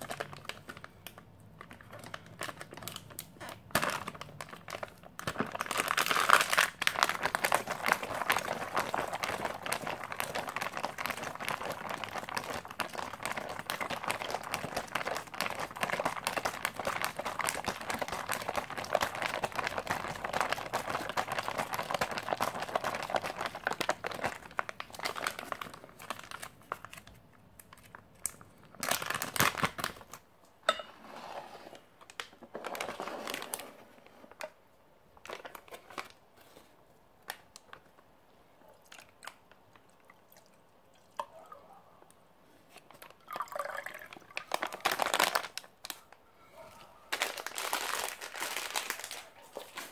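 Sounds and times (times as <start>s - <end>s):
foil packaging crinkling: 0.0s - 30.2s, 43.0s - 46.2s, 47.1s - 49.9s.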